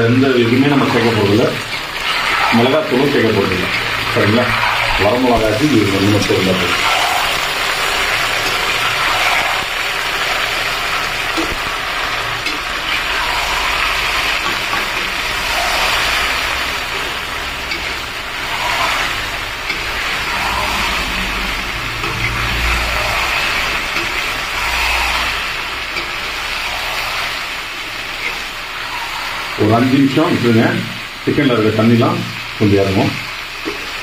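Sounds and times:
food sizzling in hot oil: 0:00.0 - 0:34.0
metal spatula scraping pan: 0:00.5 - 0:29.8.

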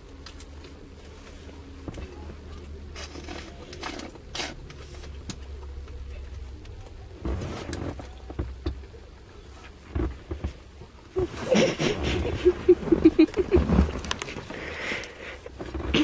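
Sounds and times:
low steady hum: 0:00.0 - 0:16.0
plastic packet and straw rustling: 0:02.6 - 0:05.2, 0:11.2 - 0:16.0.

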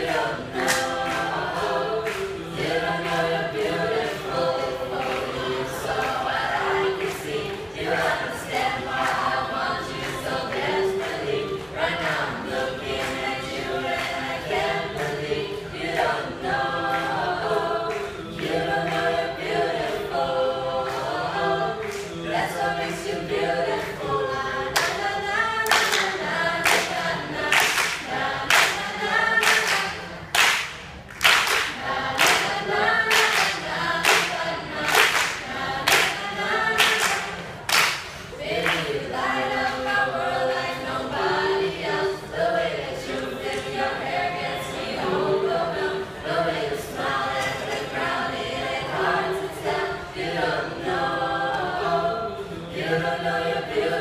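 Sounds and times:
hand claps: 0:00.0 - 0:06.4, 0:07.0 - 0:09.3, 0:16.9 - 0:19.1, 0:21.8 - 0:22.2, 0:24.8 - 0:39.0
group singing a cappella: 0:00.0 - 0:54.0.

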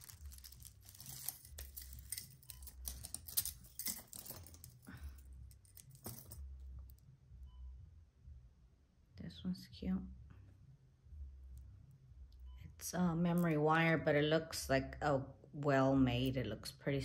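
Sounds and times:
metal jewelry clinking: 0:00.0 - 0:07.0.

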